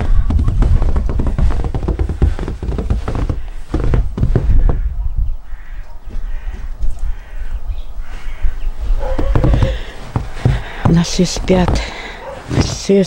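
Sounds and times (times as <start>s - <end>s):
rustling: 0.0s - 5.0s, 8.2s - 13.0s
crows cawing: 4.4s - 10.8s.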